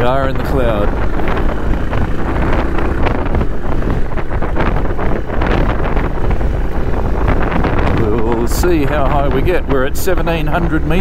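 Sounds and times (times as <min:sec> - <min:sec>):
motorcycle engine running: 0:00.0 - 0:11.0
wind buffeting microphone: 0:00.0 - 0:11.0.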